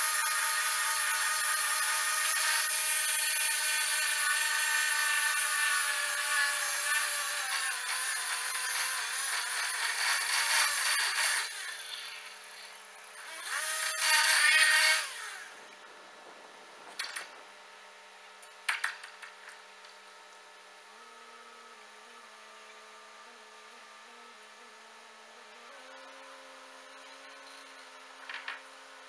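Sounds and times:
rail saw grinding steel: 0.0s - 15.6s
low steady hum: 15.0s - 29.0s.

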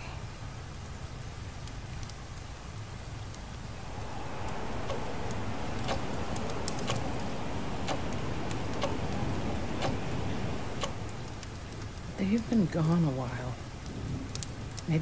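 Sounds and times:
low background rumble: 0.0s - 15.0s
wall clock ticking: 4.7s - 11.1s.

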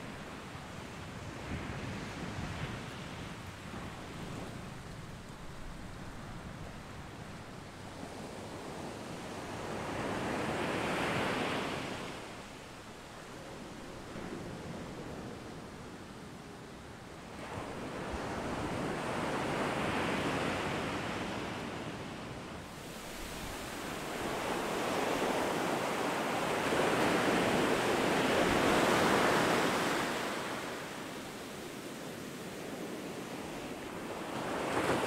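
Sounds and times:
ocean surf breaking: 22.7s - 35.0s.

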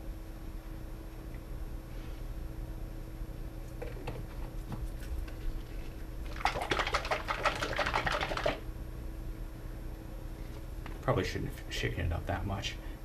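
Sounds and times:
liquid sloshing in shaken bottle: 4.2s - 8.6s.

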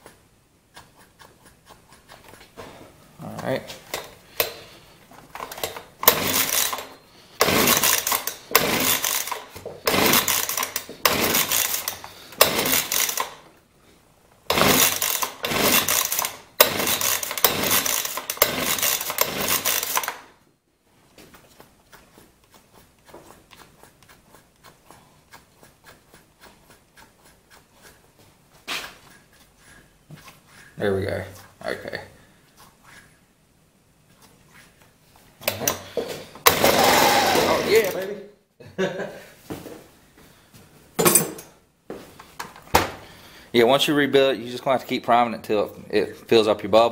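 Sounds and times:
engine cranking without catching: 5.3s - 13.4s, 14.5s - 20.3s, 35.4s - 38.1s
recoil starter pulls: 5.3s - 13.4s, 14.5s - 20.3s, 35.4s - 38.1s.

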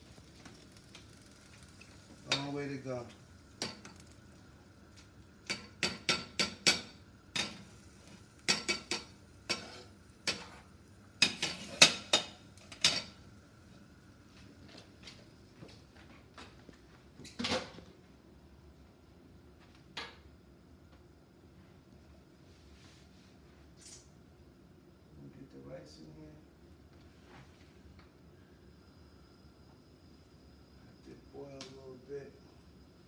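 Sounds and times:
metal cookware clanking: 2.2s - 2.6s, 5.4s - 7.7s, 8.4s - 10.6s, 11.2s - 13.2s.

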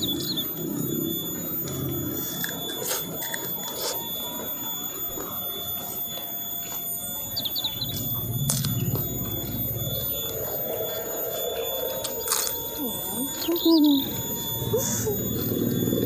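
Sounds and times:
high-pitched whine: 0.0s - 16.0s
chewing and crunching: 1.6s - 4.5s, 11.8s - 16.0s.

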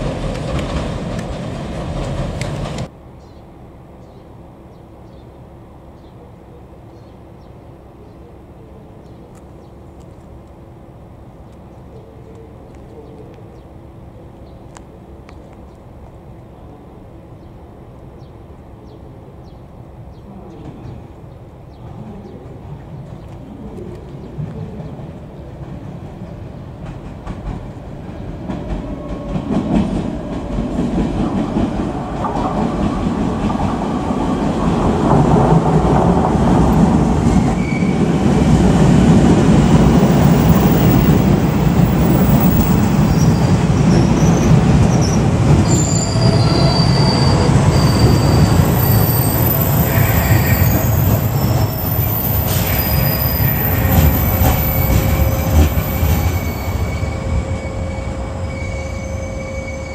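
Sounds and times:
train running past: 0.0s - 59.9s
high-pitched squeals: 42.1s - 59.9s.

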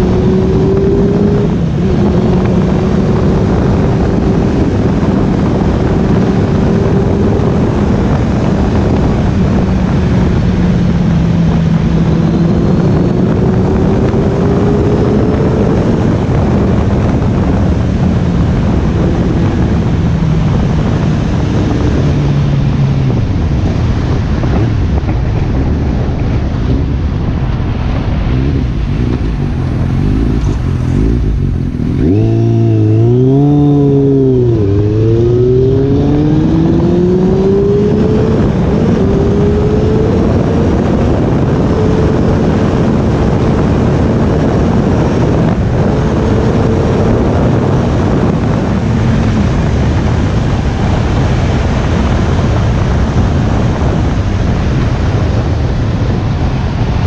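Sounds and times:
motorcycle engine revving: 0.0s - 57.0s
wind rush: 0.0s - 57.0s.

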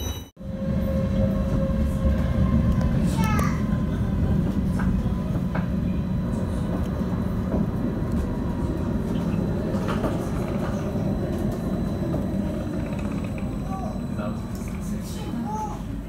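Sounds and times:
tram wheels rumbling on rail: 0.0s - 16.0s.

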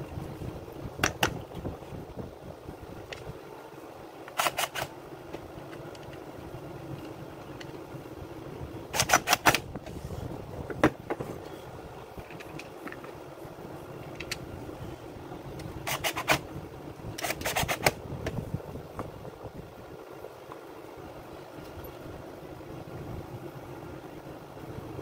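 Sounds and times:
steady low hum: 0.0s - 25.0s
plastic and metal parts clicking: 4.2s - 6.2s, 12.2s - 13.2s, 14.0s - 14.4s, 17.2s - 18.4s.

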